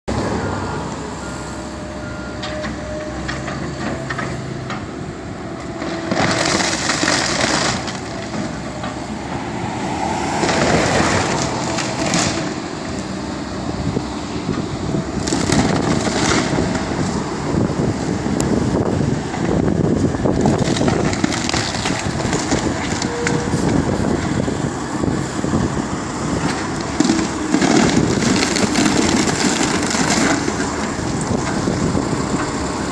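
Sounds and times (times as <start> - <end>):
excavator engine running: 0.1 - 32.9
debris crushing and cracking: 5.8 - 8.6, 10.4 - 12.6, 15.2 - 17.0, 20.3 - 23.5, 26.5 - 31.6.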